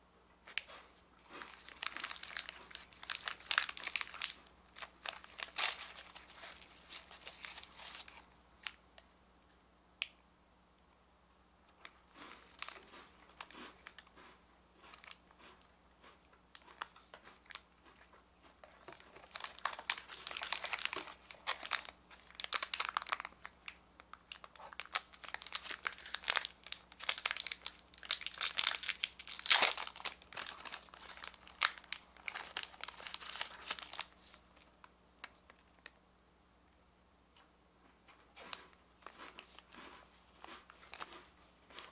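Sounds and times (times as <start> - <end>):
plastic wrappers crinkling: 0.5 - 8.8, 11.8 - 14.1, 18.6 - 34.7, 40.4 - 41.9.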